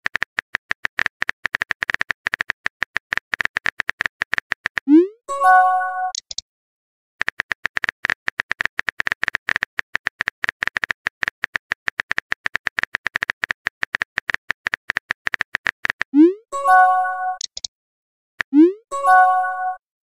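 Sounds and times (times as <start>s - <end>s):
phone keyboard typing clicks: 0.0s - 4.9s, 6.1s - 6.4s, 7.2s - 16.2s, 17.4s - 17.7s.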